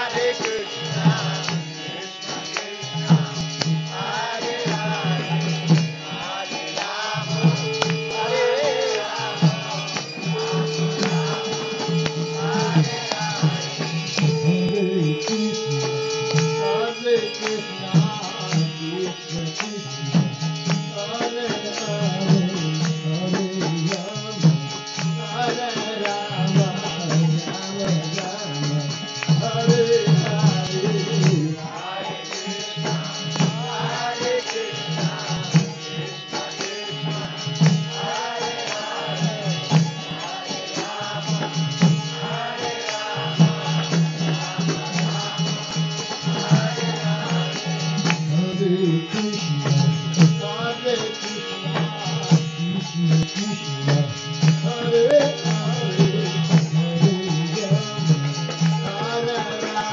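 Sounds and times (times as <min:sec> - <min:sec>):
harmonium chords: 0:00.0 - 0:59.9
man singing: 0:00.0 - 0:59.9
hand drum beat: 0:06.8 - 0:16.8.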